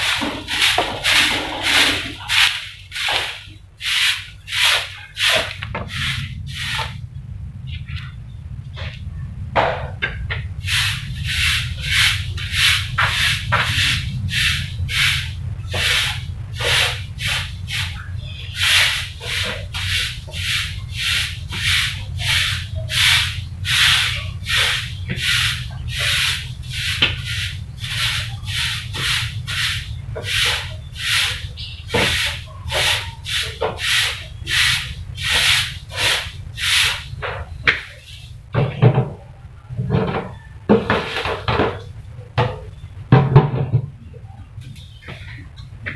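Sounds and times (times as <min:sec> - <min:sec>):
broom sweeping concrete: 0:00.0 - 0:07.0, 0:10.6 - 0:38.9, 0:40.7 - 0:42.5.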